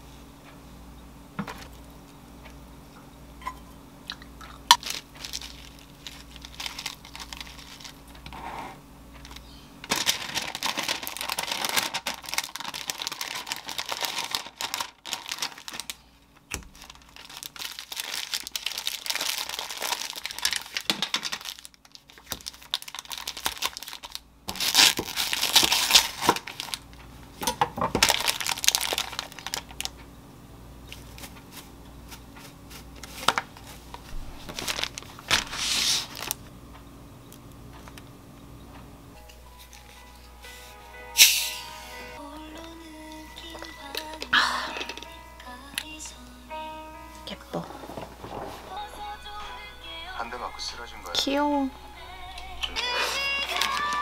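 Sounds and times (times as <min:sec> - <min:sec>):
parchment paper crinkling: 0:04.7 - 0:08.5, 0:09.1 - 0:27.1, 0:27.9 - 0:30.0, 0:30.9 - 0:36.5, 0:47.6 - 0:51.4, 0:52.5 - 0:54.0.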